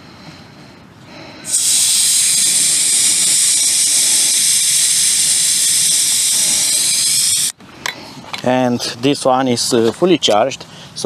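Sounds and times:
air hissing out of tyre valve: 1.4 - 7.6.

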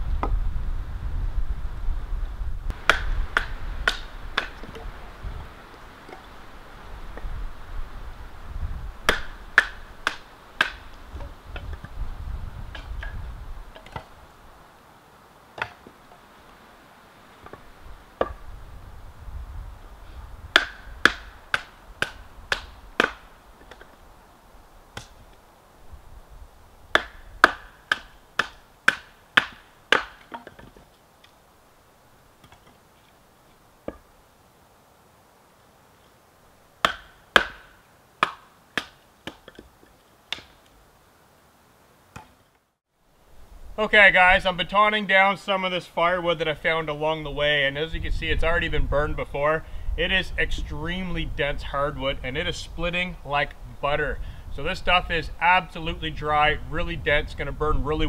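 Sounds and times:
wooden baton knocking blade through wood: 9.1 - 11.8, 20.5 - 23.9, 26.9 - 30.8, 36.8 - 39.7.

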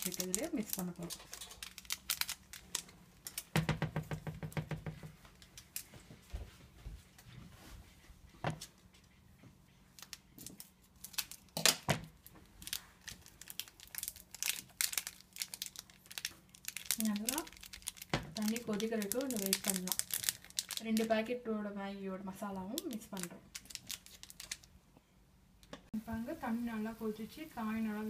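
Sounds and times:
sachet crinkling and tearing: 0.0 - 3.6, 10.0 - 21.1, 22.6 - 24.7.

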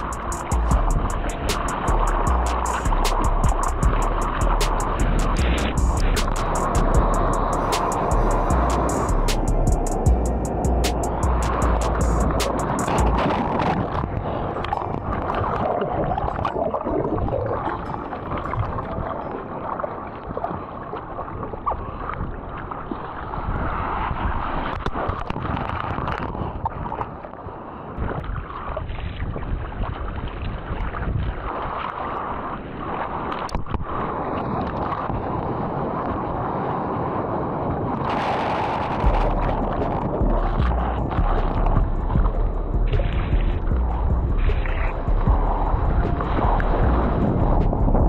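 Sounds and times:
whitewater rushing: 0.0 - 21.3.

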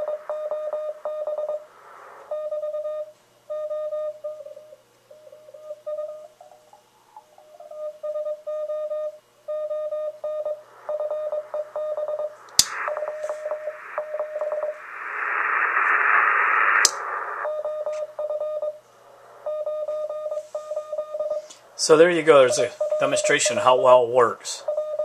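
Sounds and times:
radio band noise hiss: 0.0 - 2.3, 10.6 - 18.2, 18.8 - 19.5, 20.4 - 24.7
morse code tone: 7.6 - 14.8, 17.4 - 18.8, 19.5 - 21.5, 22.2 - 24.0, 24.6 - 25.0
sharp click: 12.5 - 12.8.

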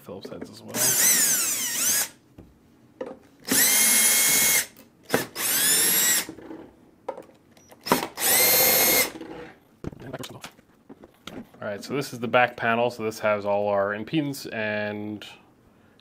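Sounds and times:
cordless drill motor whine: 0.8 - 2.1, 3.5 - 4.7, 5.4 - 6.3, 7.9 - 9.1.

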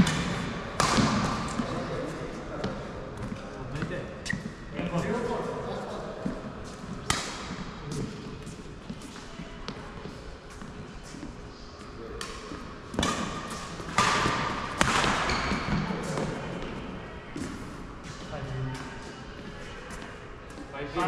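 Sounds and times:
rackets hitting shuttlecock: 0.0 - 1.8, 6.9 - 7.6, 12.1 - 16.7
shoes squeaking on floor: 3.8 - 4.8, 15.2 - 16.2.

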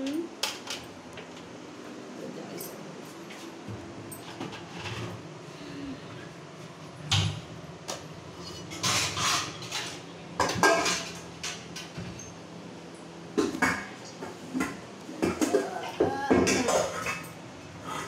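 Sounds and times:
dishes and utensils clattering: 8.4 - 12.4, 13.4 - 18.0.

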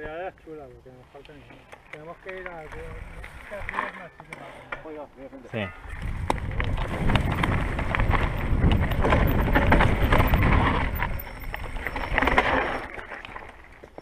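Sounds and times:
bike rumble and rattling clatter: 1.6 - 4.1, 5.8 - 14.0
wind on microphone: 5.8 - 12.4.

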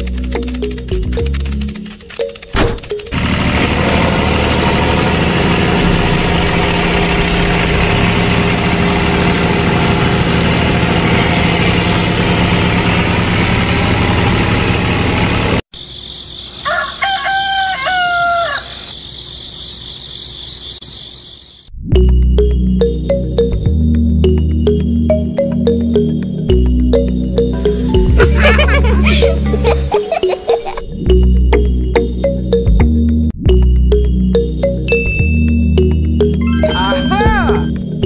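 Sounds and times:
tractor engine running: 0.0 - 15.6
rooster crowing: 16.6 - 19.0.

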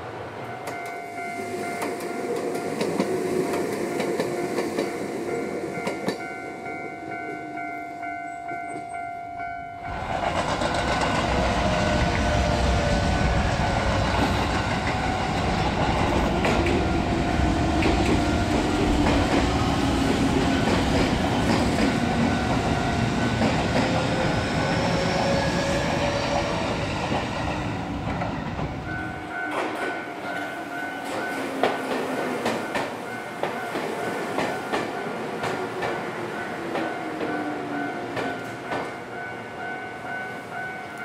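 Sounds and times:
level crossing warning bell: 0.3 - 27.0, 28.3 - 41.0
train wheels clattering: 9.9 - 28.8, 29.4 - 39.1.

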